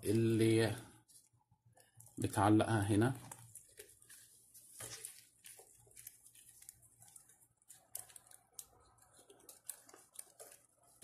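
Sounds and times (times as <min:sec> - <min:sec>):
leather handling: 0:03.0 - 0:11.0.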